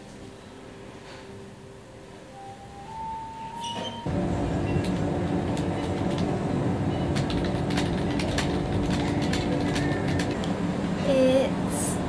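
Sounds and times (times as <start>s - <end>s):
steady low hum: 4.1s - 12.0s.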